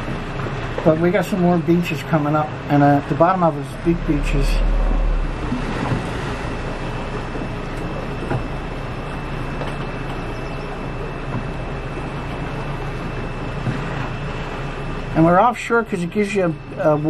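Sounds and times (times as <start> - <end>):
small boat motor running: 0.0 - 17.0.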